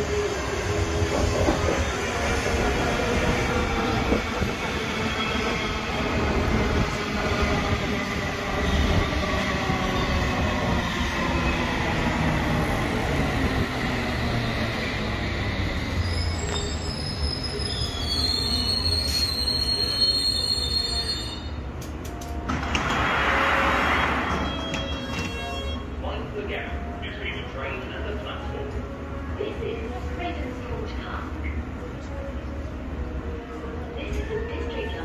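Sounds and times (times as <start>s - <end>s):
rumble of wheels on rail: 0.0s - 35.0s
high brake squeal: 15.7s - 21.6s.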